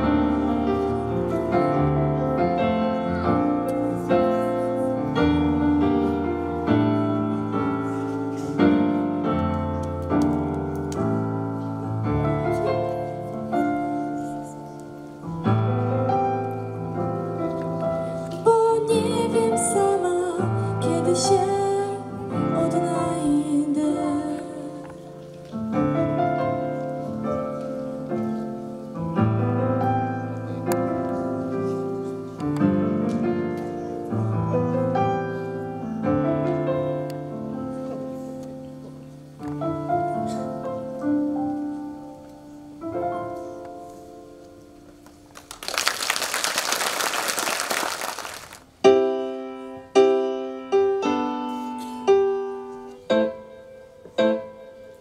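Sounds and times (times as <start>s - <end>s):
piano playing slow chords: 0.0s - 45.7s, 48.2s - 55.0s
applause: 45.0s - 48.7s.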